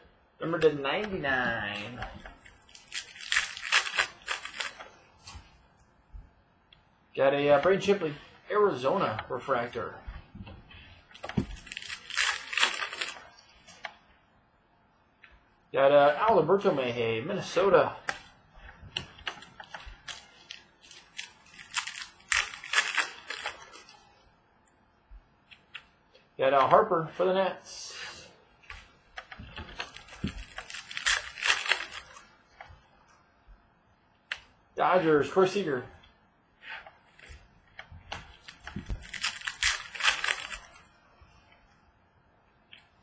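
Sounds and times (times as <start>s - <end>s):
trading cards flipped: 1.8s - 5.5s, 11.1s - 14.0s, 28.7s - 32.8s, 36.7s - 40.8s.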